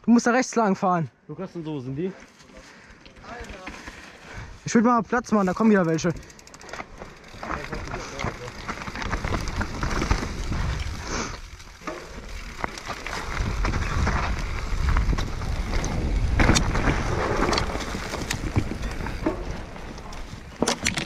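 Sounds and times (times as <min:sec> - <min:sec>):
bike clicks and rattles: 0:02.2 - 0:21.0
wind rumbling on microphone: 0:08.6 - 0:21.0.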